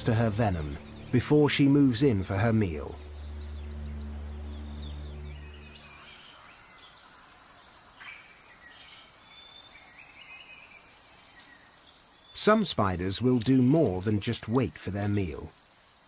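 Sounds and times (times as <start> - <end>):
bird chirps: 0.0 - 16.0
high insect hiss: 4.0 - 16.0.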